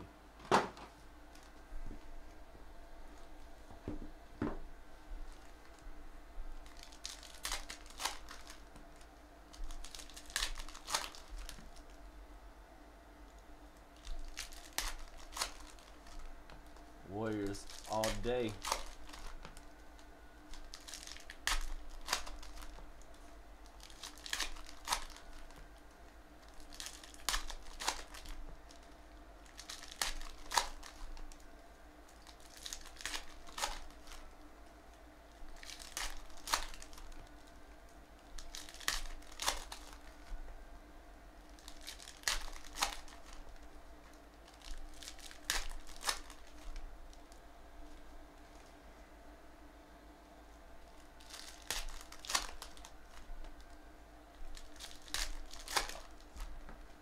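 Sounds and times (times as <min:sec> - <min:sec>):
faint room hum: 0:00.0 - 0:57.0
foil packs tearing open: 0:06.6 - 0:08.7, 0:09.6 - 0:11.9, 0:14.0 - 0:16.3, 0:17.2 - 0:19.6, 0:20.5 - 0:22.9, 0:23.6 - 0:25.6, 0:26.4 - 0:31.4, 0:32.1 - 0:34.2, 0:35.5 - 0:37.4, 0:38.4 - 0:40.2, 0:41.6 - 0:43.7, 0:44.4 - 0:46.7, 0:51.2 - 0:53.2, 0:54.5 - 0:56.5.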